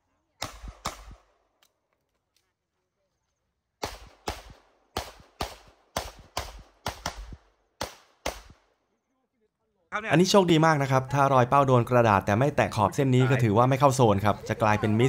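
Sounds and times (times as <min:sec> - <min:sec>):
pistol shots with echo: 0:00.4 - 0:01.5, 0:03.8 - 0:08.8.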